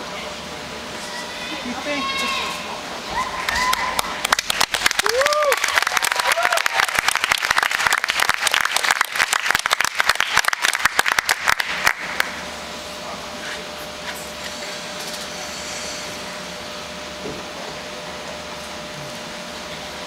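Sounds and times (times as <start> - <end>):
steady hum: 0.0 - 20.0
audience applauding: 3.3 - 12.4.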